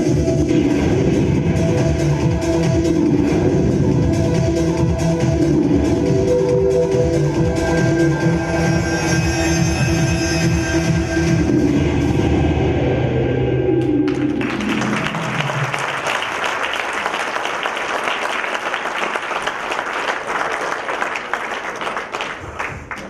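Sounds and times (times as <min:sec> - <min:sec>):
audience applause: 0:14.1 - 0:23.0.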